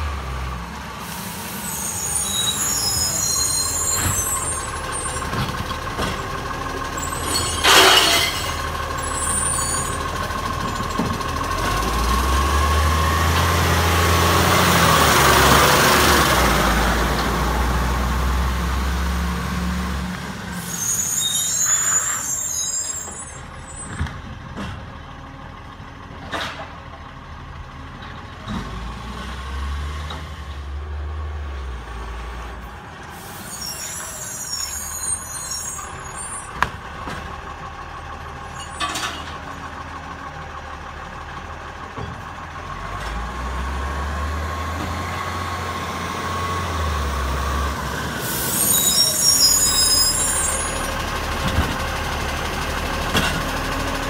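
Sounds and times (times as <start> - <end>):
garbage truck diesel engine: 0.0 - 54.0
air brakes hissing: 1.0 - 5.3, 20.5 - 23.9, 33.0 - 36.6, 48.1 - 51.0.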